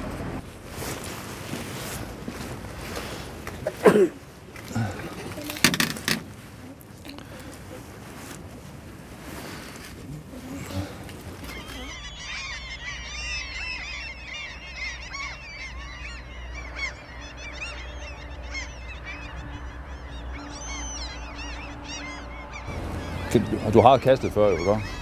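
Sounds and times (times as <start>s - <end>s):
low steady rumble: 0.0s - 3.4s, 10.2s - 25.0s
flock of birds chirping: 6.8s - 25.0s.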